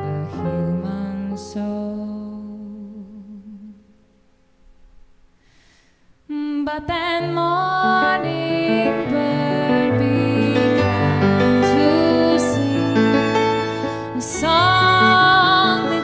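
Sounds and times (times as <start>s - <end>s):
person singing: 6.3s - 16.0s
keyboard: 8.0s - 16.0s.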